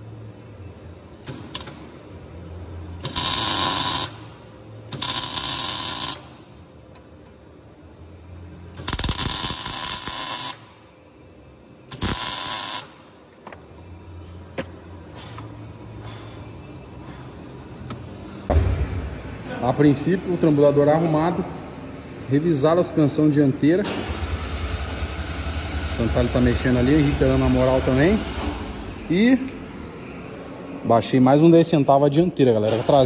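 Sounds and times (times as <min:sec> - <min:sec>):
welder arcing in crackling bursts: 0:03.0 - 0:04.3, 0:04.9 - 0:06.4, 0:08.7 - 0:10.8, 0:11.9 - 0:13.0.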